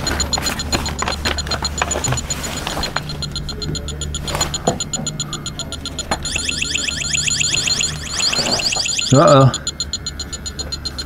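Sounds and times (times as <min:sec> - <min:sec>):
leak detector ticking: 0:00.0 - 0:11.0
rising warble alarm: 0:06.2 - 0:09.6.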